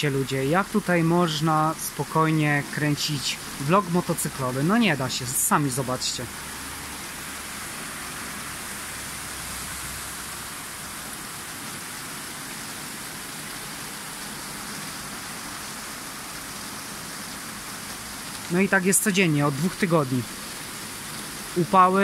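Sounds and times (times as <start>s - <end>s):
heavy rain: 0.0s - 22.0s.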